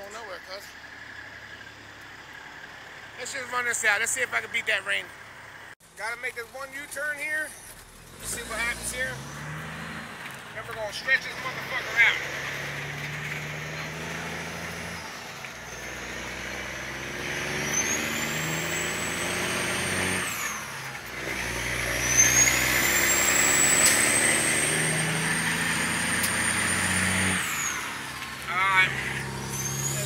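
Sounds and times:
truck diesel engine revving: 0:06.8 - 0:30.0.

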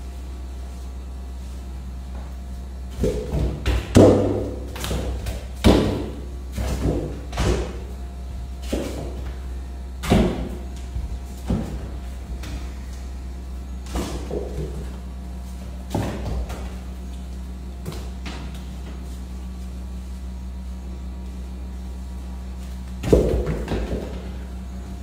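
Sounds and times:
steady low hum: 0:00.0 - 0:25.0
ball thumping with hollow ring: 0:03.0 - 0:07.9.

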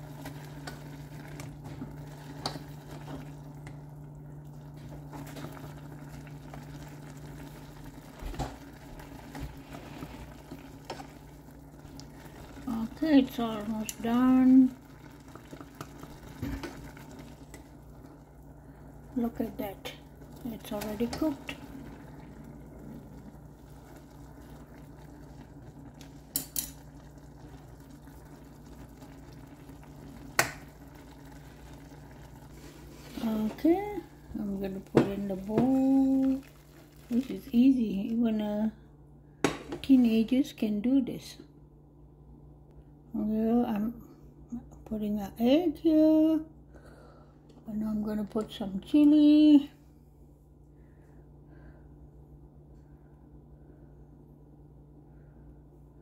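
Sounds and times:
broth bubbling: 0:00.0 - 0:38.2
noodle soup simmering: 0:00.0 - 0:40.0
low hum: 0:00.0 - 0:45.3, 0:46.0 - 0:56.0.

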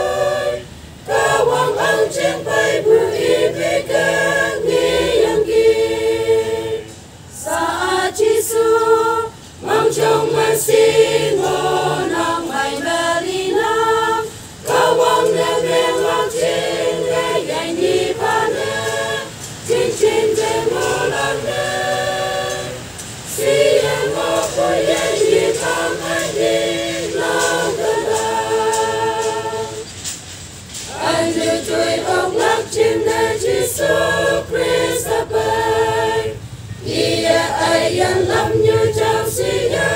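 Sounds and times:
choir singing a cappella hymn: 0:00.0 - 0:39.9.

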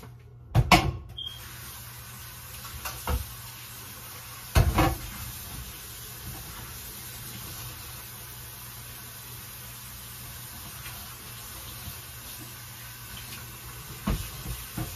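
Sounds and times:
pan knocking against sink: 0:04.5 - 0:05.1.

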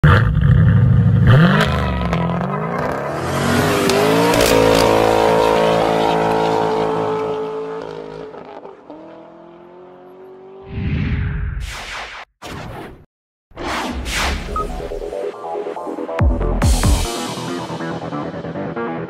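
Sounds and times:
car engine revving: 0:00.1 - 0:10.6.

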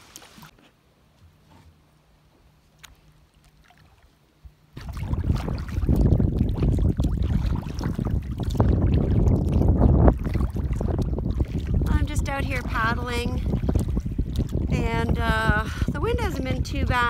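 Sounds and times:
faint lapping water: 0:02.4 - 0:17.0
water splashing against kayak: 0:02.8 - 0:15.9
wind buffeting microphone: 0:04.8 - 0:17.0.

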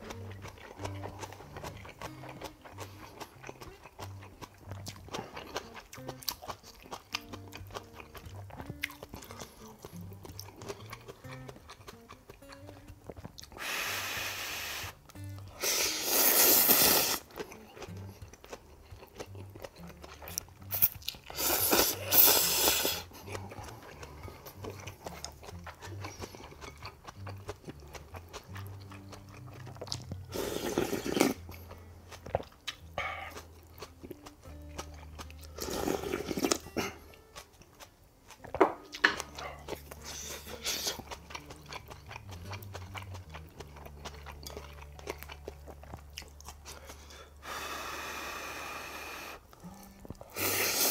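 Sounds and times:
quiet wet chewing: 0:00.0 - 0:47.9, 0:49.2 - 0:50.9
loud noodle slurps: 0:13.6 - 0:17.3, 0:20.7 - 0:23.1, 0:30.3 - 0:31.4, 0:35.6 - 0:36.9, 0:50.3 - 0:50.9.

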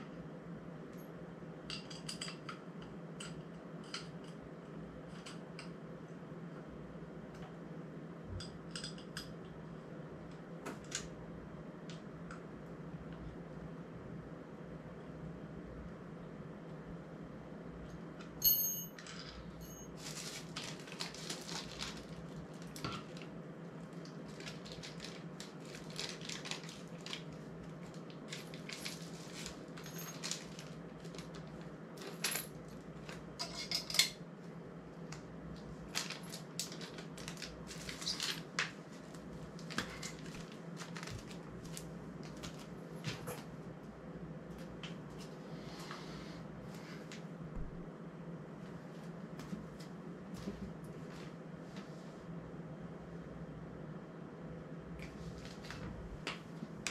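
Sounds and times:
steady low hum: 0:00.0 - 0:56.9
sharp metallic clink with ring: 0:18.4 - 0:19.0
metal parts clicking and clinking: 0:18.4 - 0:19.9, 0:28.3 - 0:30.7, 0:32.0 - 0:34.2.

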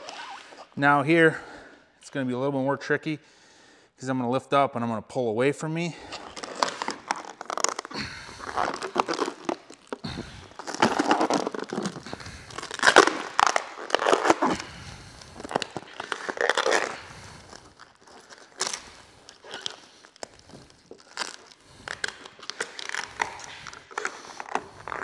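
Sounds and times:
plastic film crinkling: 0:06.0 - 0:25.0.

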